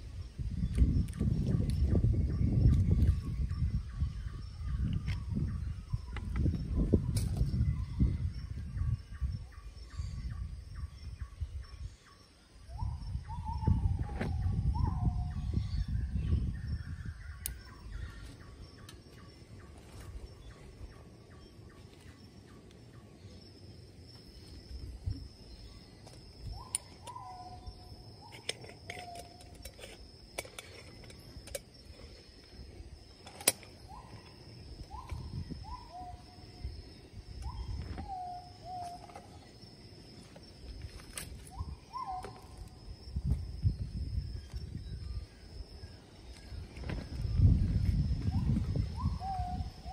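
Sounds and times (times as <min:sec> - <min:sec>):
repeating insect call: 0:00.0 - 0:49.9
thin high insect tone: 0:00.0 - 0:49.9
bird whistled calls: 0:26.5 - 0:27.8, 0:33.9 - 0:36.4, 0:41.5 - 0:42.6, 0:48.3 - 0:49.9.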